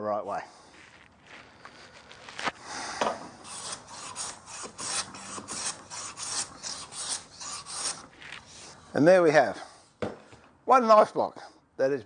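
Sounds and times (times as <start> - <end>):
plane rasping on wood: 3.4 - 8.9
knocks: 10.0 - 10.3.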